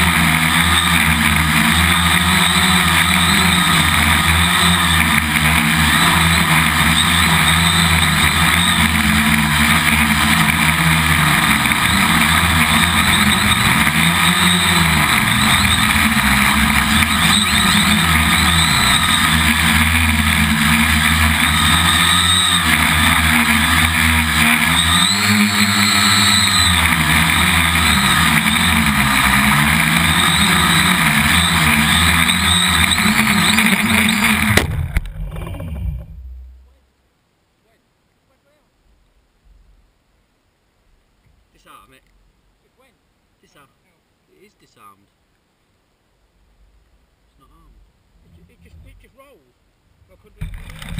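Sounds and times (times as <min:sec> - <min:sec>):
drone motors whirring: 0:00.0 - 0:36.8, 0:50.4 - 0:50.9.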